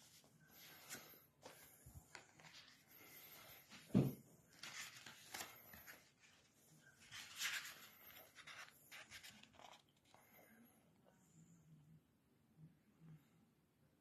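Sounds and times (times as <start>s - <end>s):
book pages turning: 0.0s - 10.4s.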